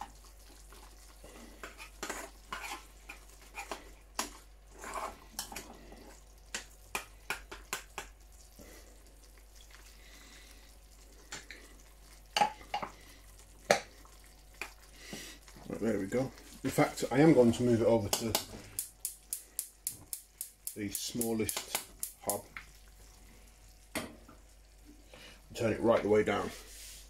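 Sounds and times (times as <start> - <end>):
faint sizzle: 0.0 - 27.0
metal spoon scraping saucepan: 1.6 - 2.9, 4.7 - 5.7.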